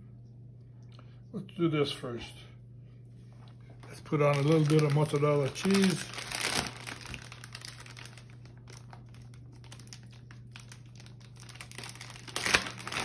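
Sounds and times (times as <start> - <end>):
faint low hum: 0.0 - 13.0
plastic bag crinkling: 3.4 - 13.0.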